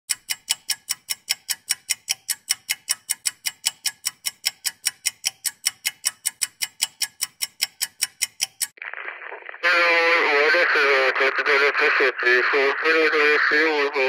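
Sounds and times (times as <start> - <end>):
clock-like ticking: 0.1 - 8.8.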